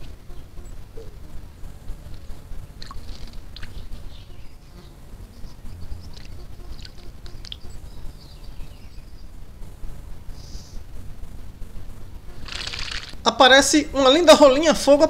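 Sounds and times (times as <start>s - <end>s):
steady low rumble: 0.0s - 15.0s
bird splashing in water: 12.4s - 13.2s.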